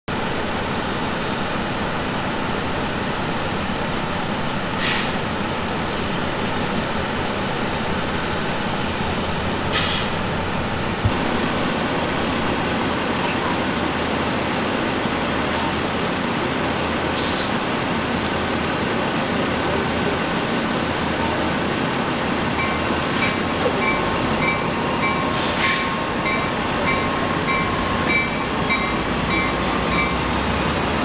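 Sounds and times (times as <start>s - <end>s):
engines droning: 0.1s - 31.0s
brief hisses: 4.8s - 5.2s, 9.7s - 10.1s, 17.2s - 17.5s.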